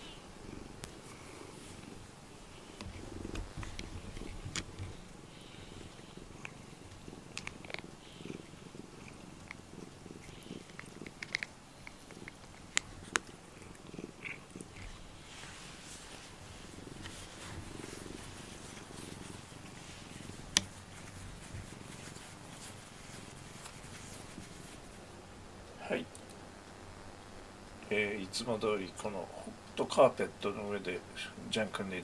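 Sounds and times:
cat purring: 0.0 - 26.2
small sharp clicks on rubber brush: 20.5 - 20.7.

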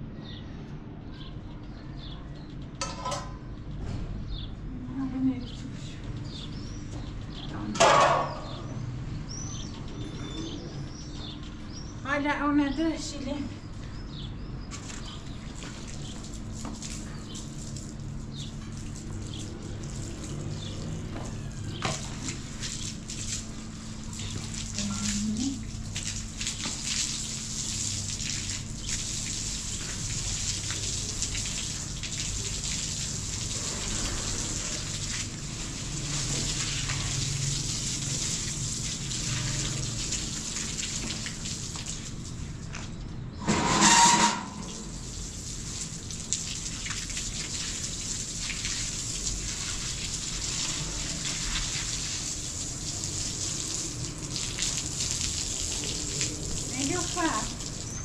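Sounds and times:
hose spraying onto tiles: 21.8 - 42.1, 44.6 - 58.0.

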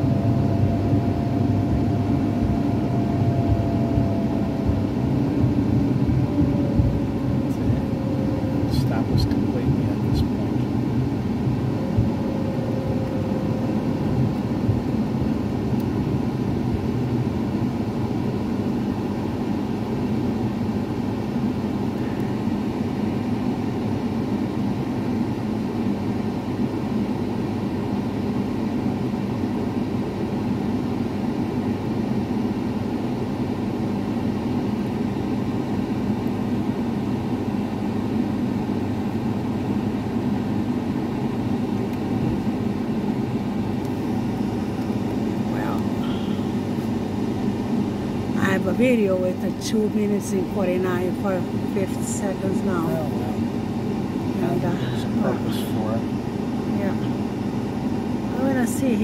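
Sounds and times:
car cabin road rumble: 0.0 - 18.8, 41.8 - 47.0.

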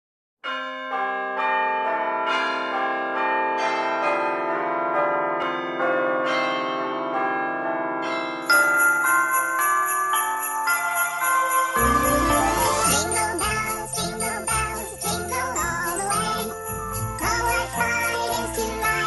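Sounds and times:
bells ringing a slow melody: 0.4 - 19.0
sleigh bells shaking: 8.5 - 19.0.

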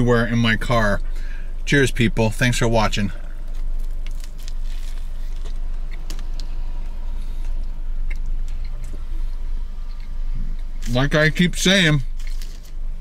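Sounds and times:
car cabin engine rumble: 0.0 - 13.0
person chewing: 3.3 - 10.9
wrapper crinkling: 3.4 - 6.6, 12.1 - 12.8.

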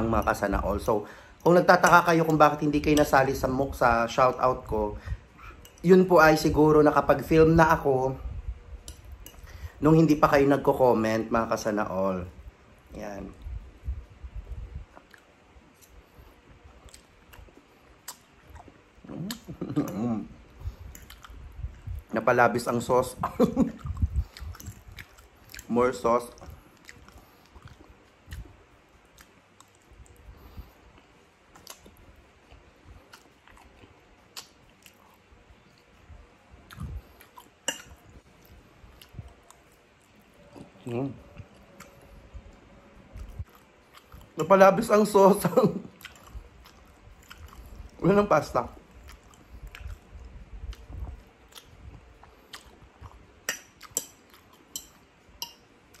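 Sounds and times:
person chewing spaghetti: 14.4 - 22.1, 23.6 - 45.0, 45.8 - 48.0, 48.6 - 56.0
wet mouth clicks: 16.8 - 20.0, 23.8 - 25.7.

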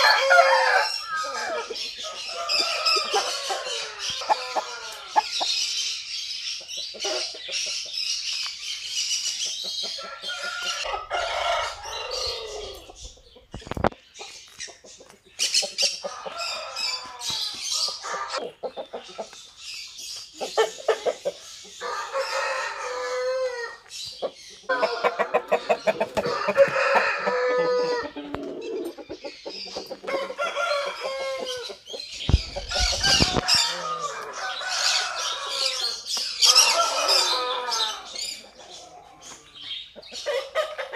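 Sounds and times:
roosters crowing: 0.0 - 5.9, 9.6 - 13.3, 15.8 - 18.5, 20.6 - 23.9, 24.6 - 29.0, 29.9 - 40.9
chickens clucking: 0.0 - 40.9.

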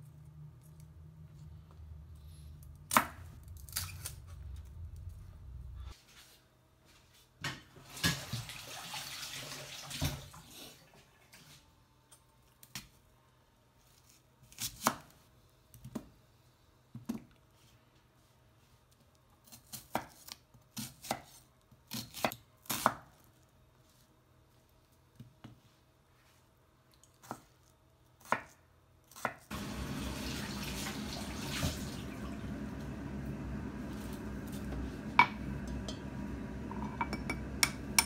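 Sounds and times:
knife chopping onion on board: 19.5 - 23.1, 28.2 - 29.5.

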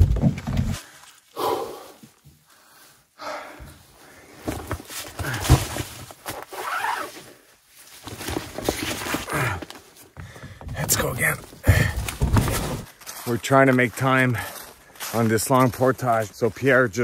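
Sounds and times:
person breathing hard: 0.8 - 4.5, 9.2 - 10.7, 11.6 - 12.1
clothing rustling: 4.2 - 10.2.

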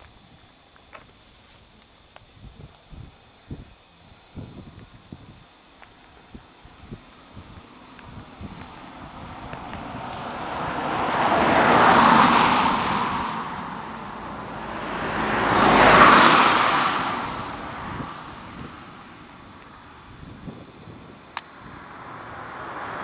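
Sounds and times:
cars passing: 6.6 - 23.0.

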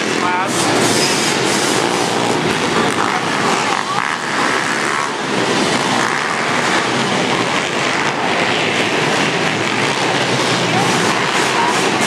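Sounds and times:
pit bike engines revving: 0.0 - 12.0.

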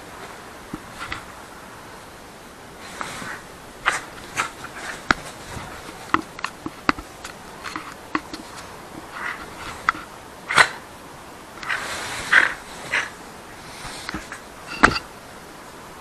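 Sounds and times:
rope toy clicks and knocks: 6.0 - 10.7.

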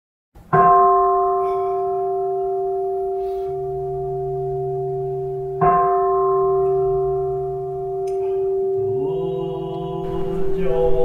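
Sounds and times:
low drone: 7.1 - 11.0.

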